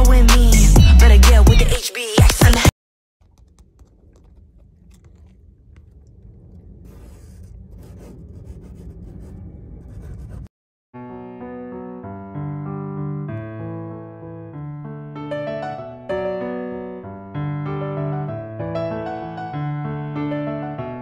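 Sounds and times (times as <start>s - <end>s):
faint crackles and clicks: 3.2s - 9.5s
low rumbling noise: 3.4s - 10.5s
soft piano music: 11.0s - 21.0s.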